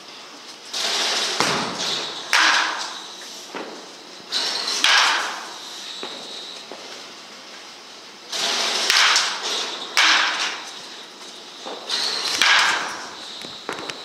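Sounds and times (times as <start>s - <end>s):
bat cracking balls with echo: 0.8s - 6.9s, 8.3s - 11.0s, 11.6s - 14.0s.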